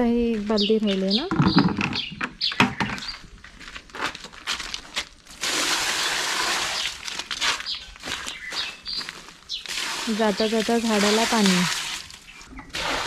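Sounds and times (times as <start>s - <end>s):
water gushing from a bucket: 5.3s - 7.7s, 9.6s - 13.0s.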